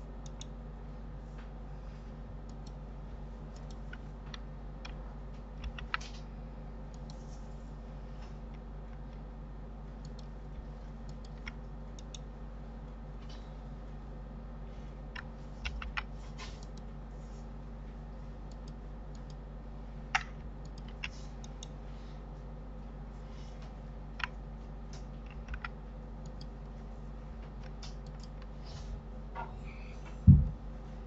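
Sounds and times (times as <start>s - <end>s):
low electrical hum: 0.0s - 31.0s
computer keyboard and mouse clicks: 0.2s - 0.5s, 2.4s - 2.8s, 3.5s - 6.3s, 6.9s - 7.2s, 10.0s - 10.4s, 11.0s - 12.3s, 15.1s - 16.9s, 18.5s - 19.4s, 20.1s - 21.8s, 24.2s - 26.7s, 27.4s - 28.5s.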